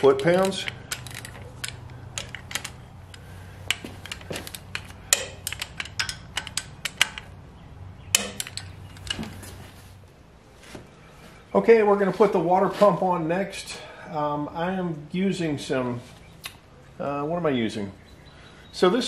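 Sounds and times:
wrench clicking on bolts: 0:00.0 - 0:07.4, 0:08.1 - 0:09.3.

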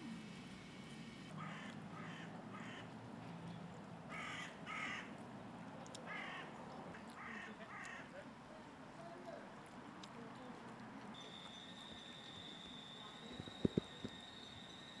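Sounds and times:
harsh caw-like bird calls: 0:01.3 - 0:02.9, 0:04.1 - 0:05.2, 0:06.1 - 0:06.6, 0:07.2 - 0:08.1.

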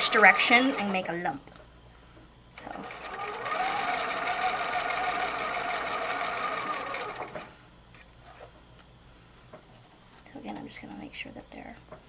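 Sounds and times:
sewing machine stitching: 0:00.0 - 0:01.1, 0:02.7 - 0:07.5.

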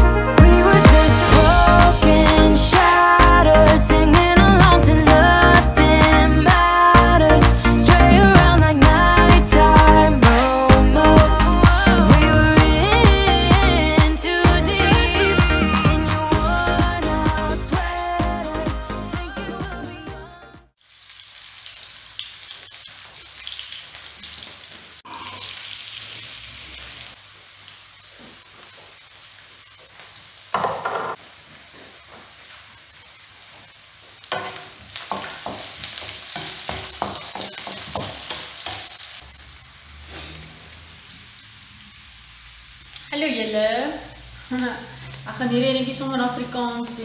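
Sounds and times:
onions sizzling in a wok: 0:20.8 - 0:47.0
wooden spatula scraping a wok: 0:40.0 - 0:40.8.

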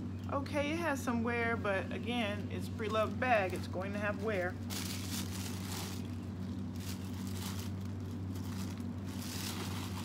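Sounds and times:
low hum: 0:00.0 - 0:10.0
handbag rustling: 0:02.8 - 0:10.0.

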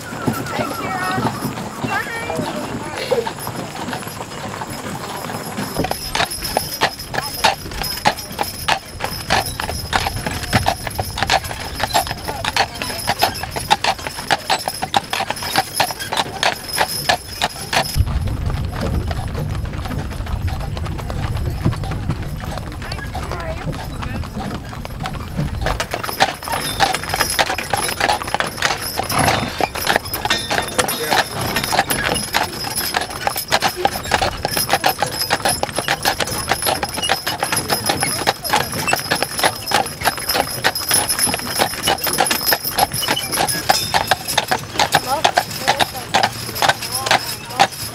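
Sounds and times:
horse hooves on paved road: 0:00.0 - 0:47.9
steady low rumble: 0:18.0 - 0:22.2.

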